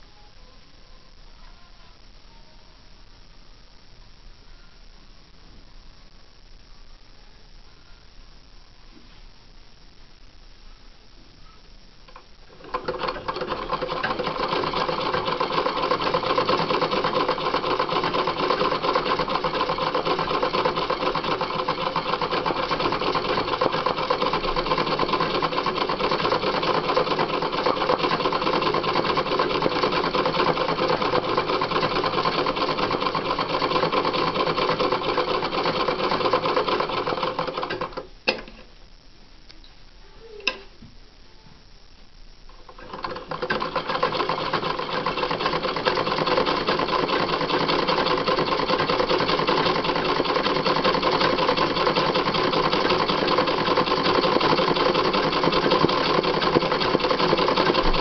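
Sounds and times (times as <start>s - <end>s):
sewing machine stitching: 12.5s - 38.1s, 42.6s - 58.0s.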